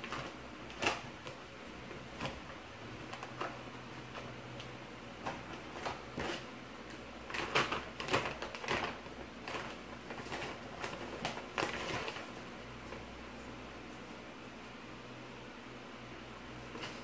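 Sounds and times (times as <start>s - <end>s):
plastic bag crinkling: 5.2s - 12.5s.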